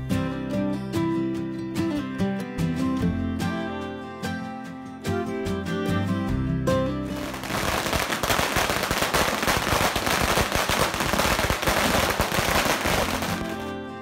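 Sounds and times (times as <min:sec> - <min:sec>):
background music: 0:00.0 - 0:14.0
firecrackers popping: 0:07.2 - 0:13.8.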